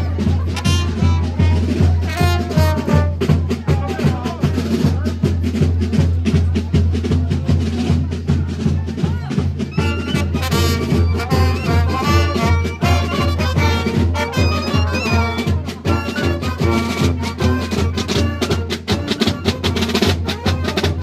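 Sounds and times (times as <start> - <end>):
trombones and trumpets: 0.0 - 3.4, 9.7 - 21.0
bass drum and snare beat: 0.0 - 21.0
marching brass band: 0.0 - 21.0.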